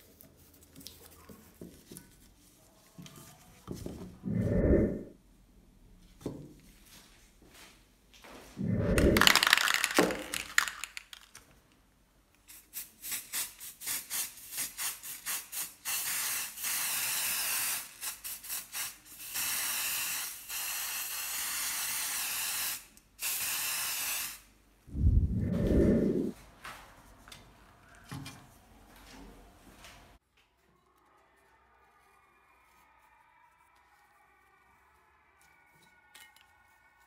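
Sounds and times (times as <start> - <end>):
spray paint can spraying: 12.5 - 24.4.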